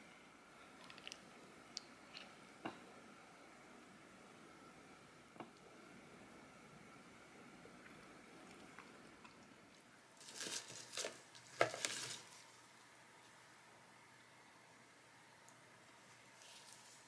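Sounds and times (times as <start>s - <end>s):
crinkling handling noise: 10.1s - 13.4s, 16.1s - 17.0s
hand rustling leafy greens: 10.2s - 12.6s, 16.4s - 17.0s.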